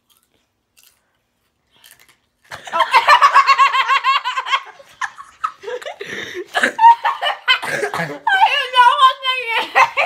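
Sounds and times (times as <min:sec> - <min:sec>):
boys laughing hard: 0:02.5 - 0:10.0.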